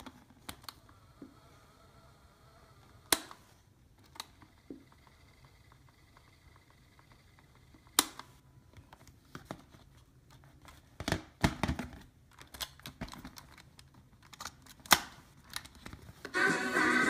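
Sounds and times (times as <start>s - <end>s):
music playing: 16.3s - 17.0s.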